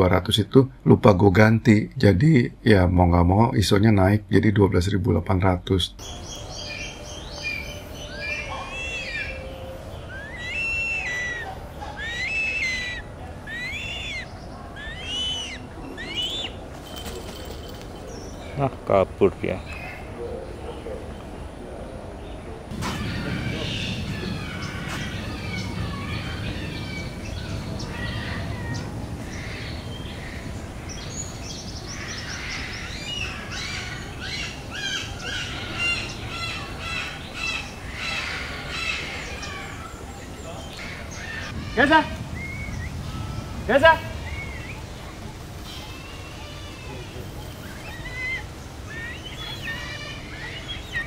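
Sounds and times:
birds chirping and calling: 5.9 - 51.0
bird whistled calls: 6.0 - 16.6, 42.3 - 43.5, 44.1 - 45.0
low background rumble: 21.7 - 51.0.

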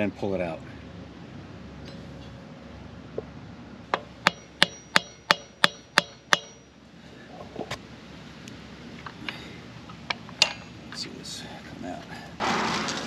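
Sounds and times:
hammer tapping metal: 3.9 - 6.7.

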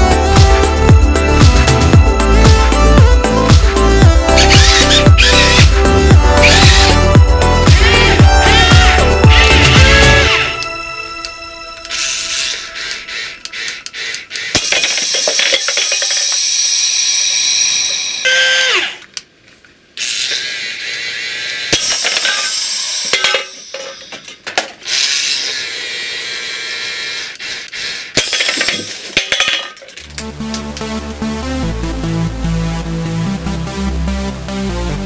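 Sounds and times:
small electric motors whirring: 4.4 - 5.8, 6.4 - 7.1, 7.7 - 10.7, 11.9 - 19.1, 20.0 - 23.3, 24.8 - 28.3.

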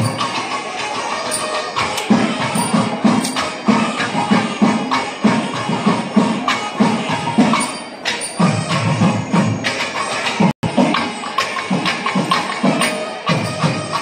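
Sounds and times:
small hand cymbals clashing: 0.0 - 4.2, 6.5 - 9.0, 9.6 - 14.0
drum strokes: 0.0 - 14.0.

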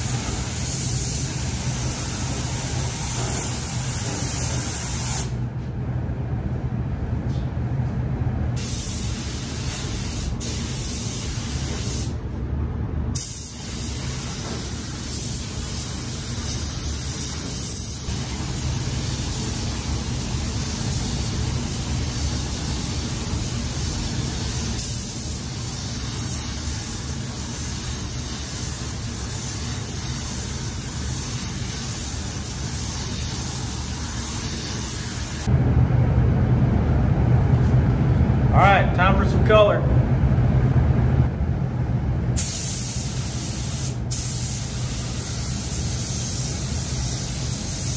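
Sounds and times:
paint spray gun hissing: 0.0 - 5.4, 13.2 - 35.5, 42.4 - 47.9
steady low hum: 0.0 - 47.9.

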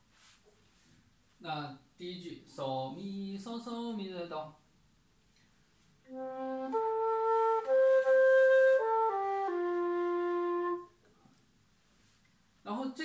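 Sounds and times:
bamboo flute playing slow notes: 6.1 - 11.0.

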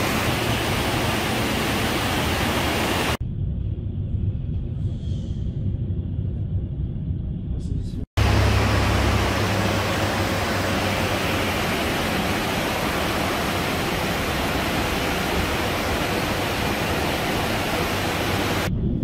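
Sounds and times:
river rushing over rocks: 0.0 - 3.2, 8.2 - 18.7.

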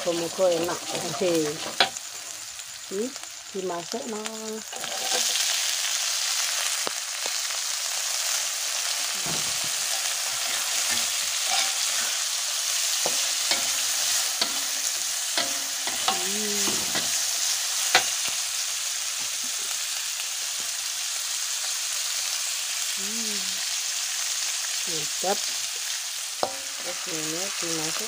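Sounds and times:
vegetables sizzling in a wok: 0.0 - 28.0
spatula scraping a pan: 4.7 - 5.5, 9.1 - 18.3, 26.4 - 27.0.

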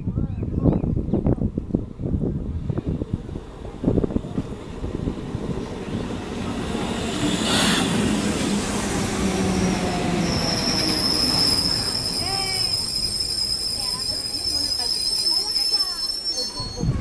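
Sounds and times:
train rumbling and braking: 1.0 - 17.0
train wheels squealing: 6.0 - 17.0.

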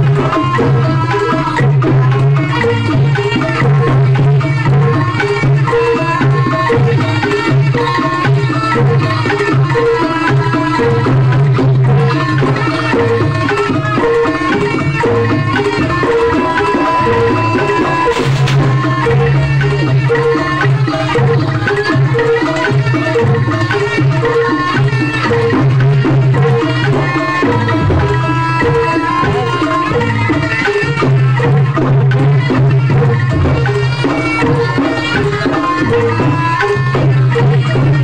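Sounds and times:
hand drum rhythm: 0.0 - 38.0
sustained melody line: 11.8 - 24.6, 25.2 - 29.9.

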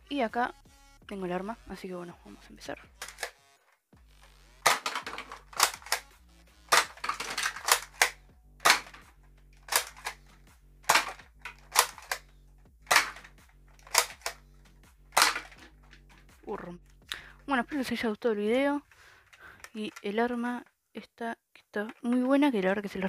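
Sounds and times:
background music: 0.0 - 20.5
darts striking plastic cans: 4.6 - 6.0, 6.7 - 9.1, 9.7 - 10.2, 10.9 - 12.2, 12.8 - 14.4, 15.1 - 16.3.

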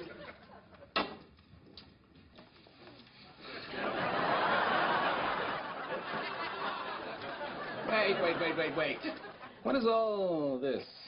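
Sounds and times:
audience laughing: 0.0 - 0.9, 3.4 - 9.6.

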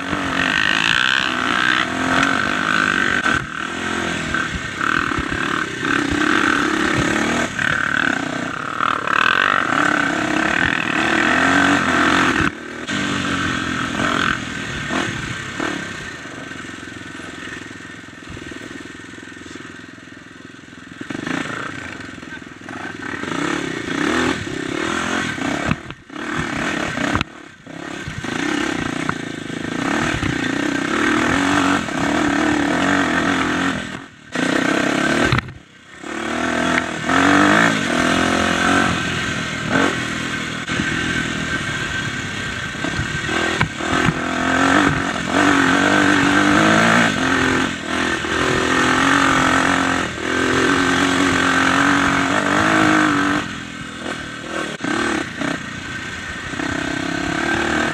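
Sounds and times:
dirt bike engine revving: 0.0 - 57.9.

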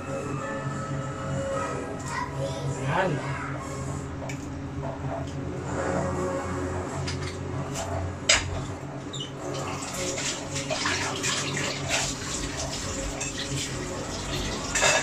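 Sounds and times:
gas burner hum: 0.0 - 15.0
broth bubbling in a pot: 9.1 - 15.0.

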